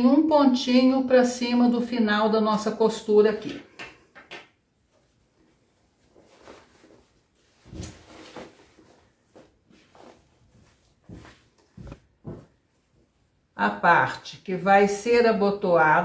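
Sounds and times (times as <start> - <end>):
fabric rustling on wooden table: 4.8 - 13.2.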